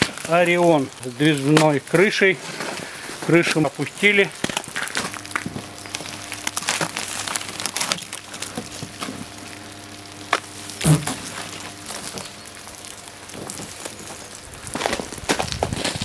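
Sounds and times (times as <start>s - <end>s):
footsteps crunching through snow: 0.0s - 16.0s
snow shovel scraping icy snow: 1.4s - 5.2s, 14.8s - 16.0s.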